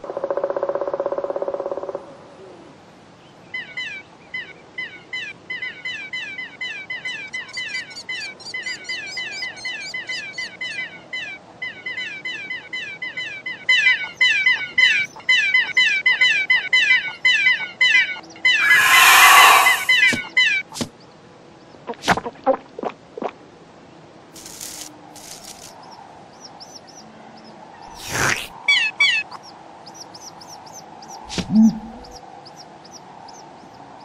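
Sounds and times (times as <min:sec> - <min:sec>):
chicks cheeping: 0:26.3 - 0:33.8.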